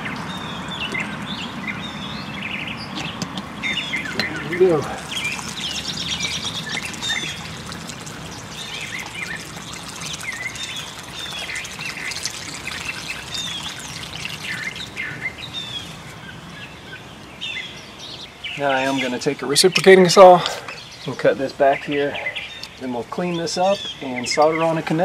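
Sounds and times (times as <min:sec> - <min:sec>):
birds chirping: 0:00.0 - 0:25.0
water pouring into muddy puddle: 0:03.8 - 0:16.2.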